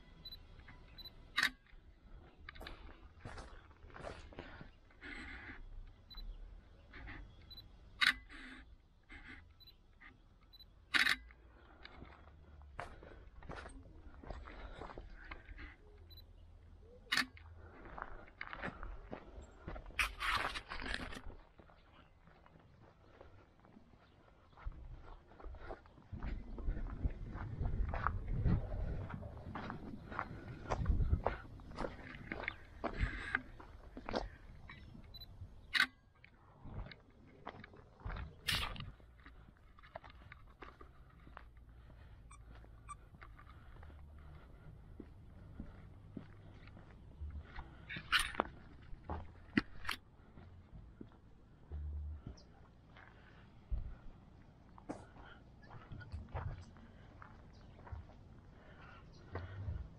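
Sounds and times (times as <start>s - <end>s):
footsteps crunching on gravel: 2.6s - 4.7s, 17.4s - 35.1s, 36.5s - 49.8s, 54.8s - 59.8s.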